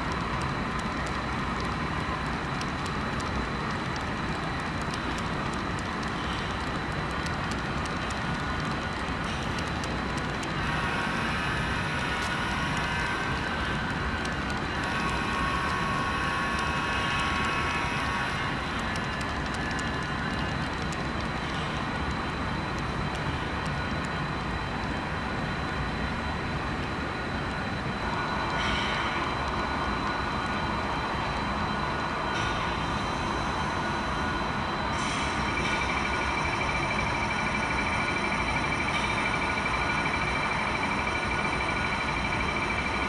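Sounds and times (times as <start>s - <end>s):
train running noise: 0.0s - 43.0s.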